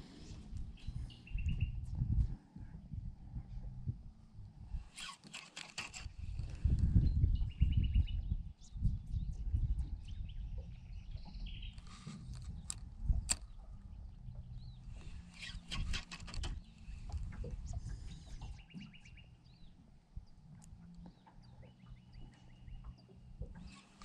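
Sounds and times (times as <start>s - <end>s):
birds chirping and trilling: 0.0s - 1.8s, 5.0s - 12.8s, 13.4s - 20.4s, 21.0s - 24.0s
low rumble: 0.0s - 4.9s.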